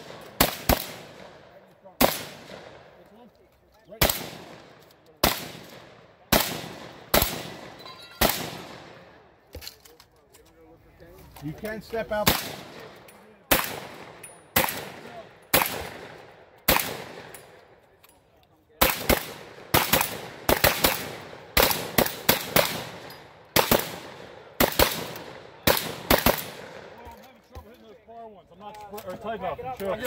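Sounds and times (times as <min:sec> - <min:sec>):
shotgun shots: 0:00.0 - 0:03.0, 0:04.0 - 0:09.1, 0:12.2 - 0:17.5, 0:18.8 - 0:27.0.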